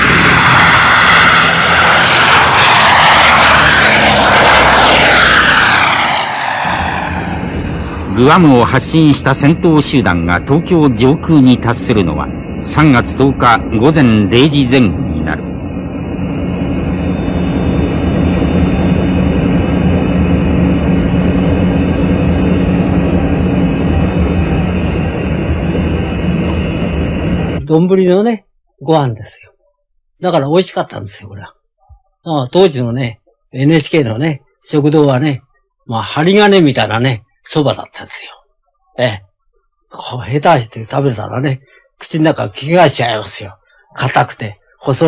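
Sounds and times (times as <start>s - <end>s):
rushing air noise: 0.0s - 27.6s
propeller bomber engines droning: 0.0s - 28.0s.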